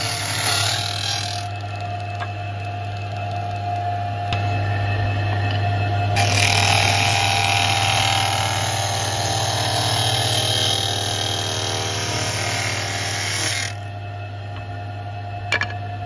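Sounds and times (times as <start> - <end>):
cutter rasping into wood: 0.0 - 1.6, 6.2 - 13.8
motor hum: 0.0 - 16.0.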